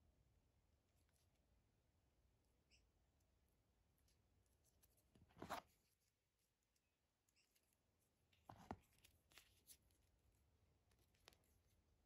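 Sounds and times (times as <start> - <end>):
fingers handling leather strap: 4.5 - 6.8, 8.3 - 10.1.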